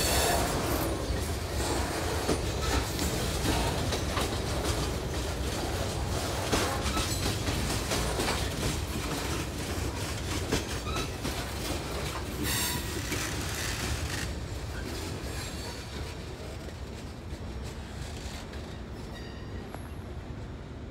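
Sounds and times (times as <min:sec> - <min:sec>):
wheels clattering over rail joints: 0:00.0 - 0:16.5
freight train rolling on rails: 0:00.0 - 0:20.9
high wheel squeal: 0:12.4 - 0:13.7.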